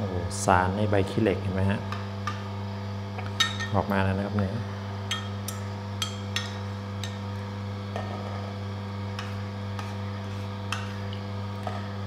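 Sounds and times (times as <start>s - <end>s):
juicer humming: 2.5s - 12.0s.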